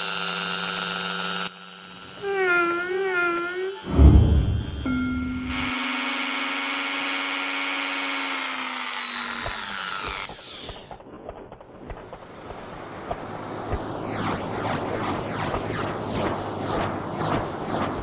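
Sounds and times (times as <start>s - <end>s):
power drill motor whine: 0.0s - 10.8s.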